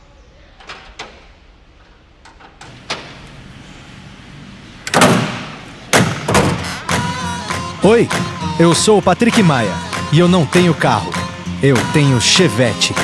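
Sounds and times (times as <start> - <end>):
car hood slamming shut: 4.9 - 6.7.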